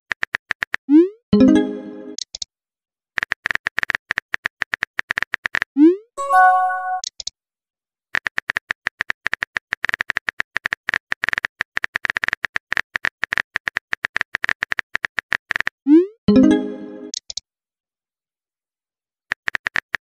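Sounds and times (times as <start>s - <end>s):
message sent chime: 1.4s - 2.2s, 6.2s - 7.0s, 16.3s - 17.1s.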